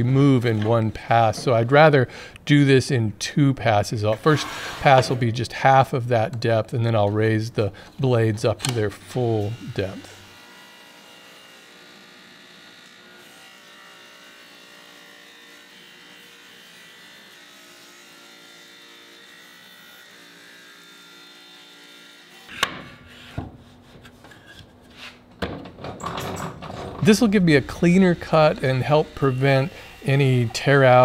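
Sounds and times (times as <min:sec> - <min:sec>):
table saw cutting wood: 0:04.2 - 0:05.3, 0:08.7 - 0:23.9, 0:27.1 - 0:31.0
handling noises: 0:23.5 - 0:27.2.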